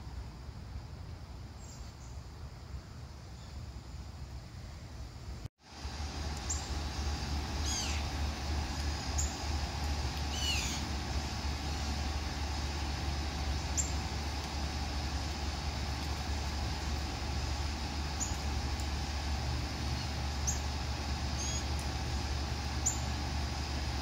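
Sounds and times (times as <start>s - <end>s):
distant traffic rumble: 0.0s - 24.0s
small birds calling: 6.3s - 23.3s.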